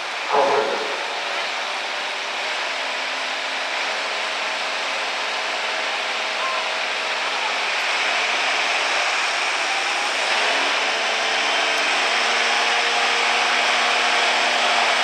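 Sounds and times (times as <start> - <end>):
loud sound falling in pitch: 0.3 - 1.4.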